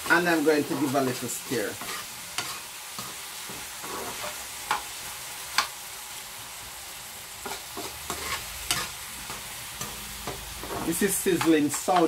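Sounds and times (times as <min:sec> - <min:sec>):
vegetables sizzling in oil: 0:00.0 - 0:12.0
metal spoon scraping pan: 0:00.6 - 0:04.8, 0:07.4 - 0:12.0.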